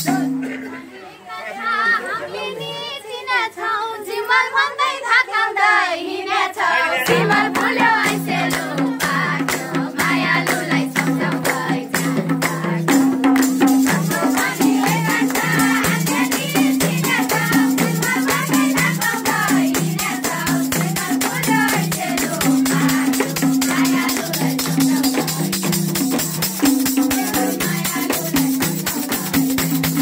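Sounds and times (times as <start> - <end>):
women singing together: 0.0 - 30.0
hand clapping: 7.1 - 8.8, 13.3 - 14.0.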